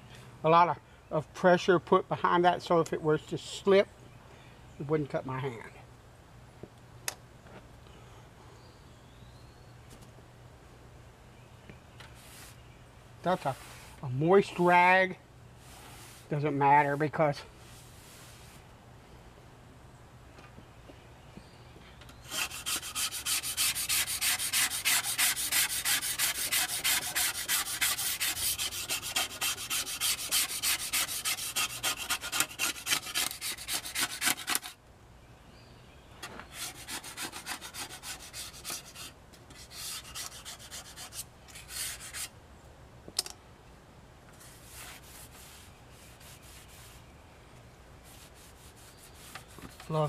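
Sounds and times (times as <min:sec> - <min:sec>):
razor blade scraping metal: 0:22.3 - 0:34.8, 0:36.5 - 0:42.3.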